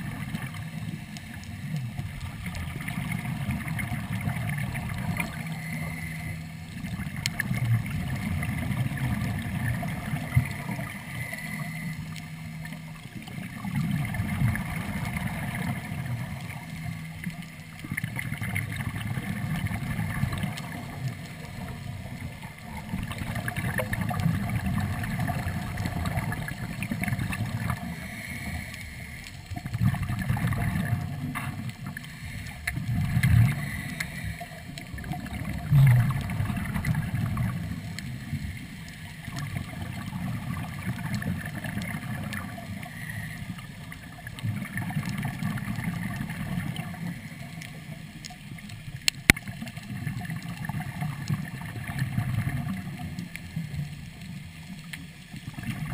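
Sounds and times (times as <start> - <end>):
underwater exhalation bubbles: 1.7 - 6.1, 6.8 - 11.8, 13.3 - 16.6, 17.8 - 28.6, 29.6 - 32.0, 32.7 - 34.2, 34.8 - 38.4, 39.2 - 42.9, 43.5 - 47.1, 49.3 - 53.2, 55.5 - 55.9.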